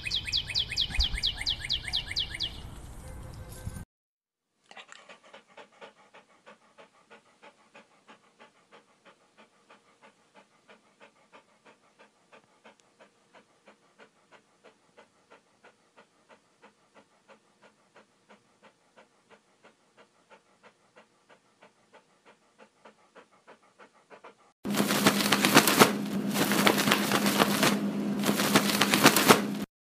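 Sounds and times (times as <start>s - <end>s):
dog panting: 4.7s - 29.7s.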